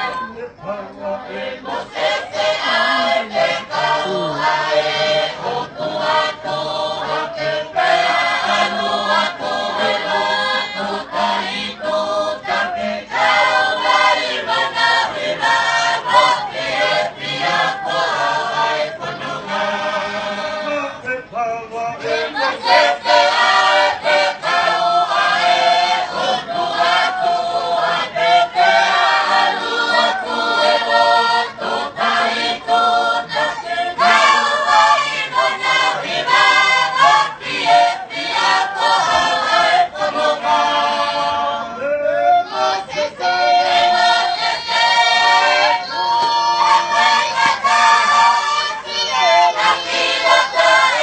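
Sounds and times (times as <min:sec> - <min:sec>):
group of people singing a hymn: 0:00.0 - 0:51.0.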